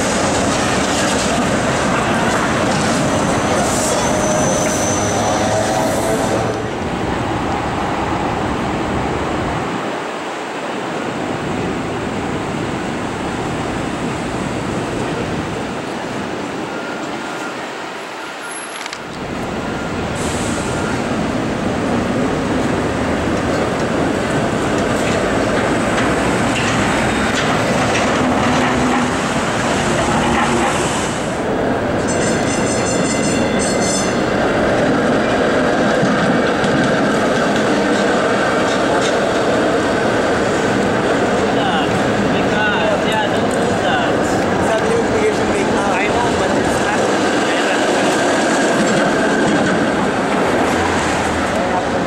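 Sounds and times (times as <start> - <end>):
streetcar wheels rumbling on rails: 0.0 - 52.0
high pulsing squeal: 3.5 - 6.5.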